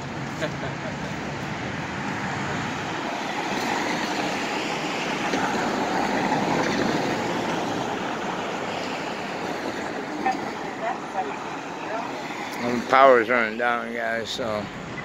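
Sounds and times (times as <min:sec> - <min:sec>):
street traffic: 0:00.0 - 0:15.0
vehicle passing: 0:00.0 - 0:15.0.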